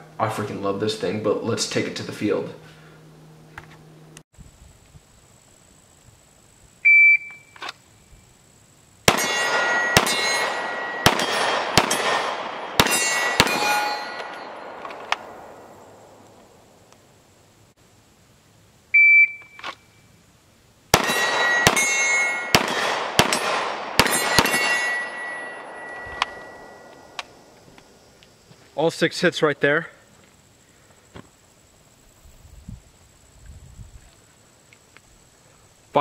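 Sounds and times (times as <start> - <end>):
shot timer beep: 6.9 - 7.6, 19.0 - 19.6
pistol shots: 9.1 - 15.6, 20.9 - 26.9
steel target ringing: 9.1 - 15.9, 21.0 - 27.5.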